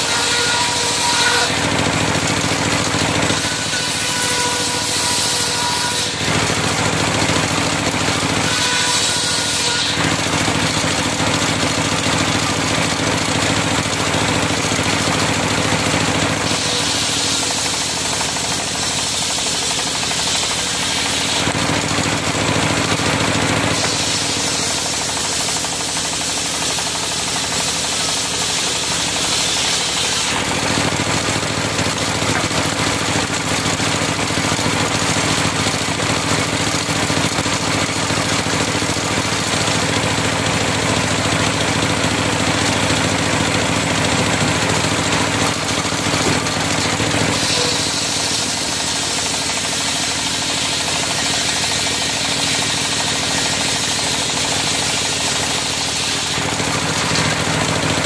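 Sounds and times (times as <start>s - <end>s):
circular sawmill blade running: 0.0s - 58.0s
saw blade hissing through log: 8.4s - 10.0s, 16.4s - 21.5s, 23.7s - 30.4s, 47.3s - 57.3s.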